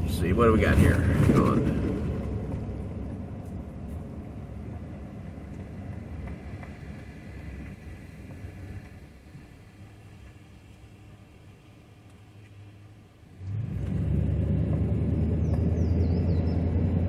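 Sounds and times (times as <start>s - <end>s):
engine and tyre rumble: 0.0s - 17.0s.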